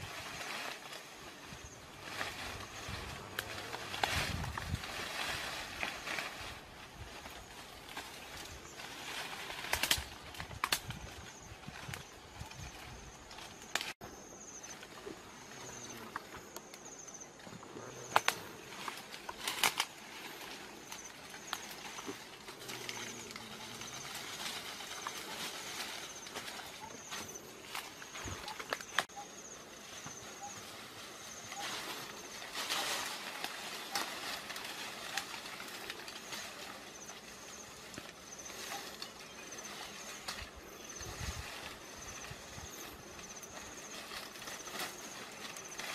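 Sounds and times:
faint high insect chirp: 0.0 - 45.9
leaves and vines rustling: 0.0 - 45.9
dry twigs snapping: 9.1 - 11.2, 13.4 - 14.0, 18.1 - 23.5.

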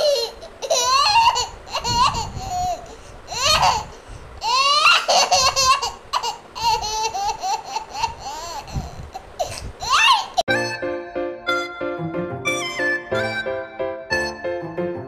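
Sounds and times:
toddler laughing and squealing: 0.0 - 10.8, 12.5 - 13.6.

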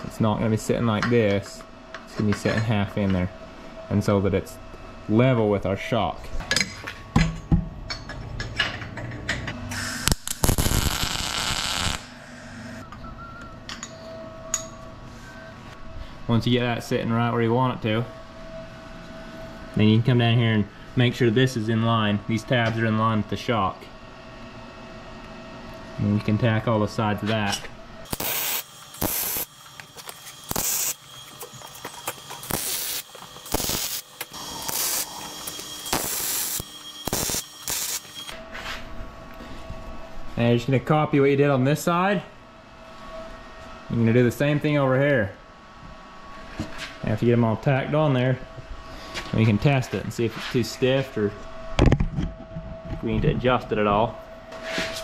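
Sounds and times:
welder crackling hiss: 9.7 - 12.1, 28.1 - 38.3.

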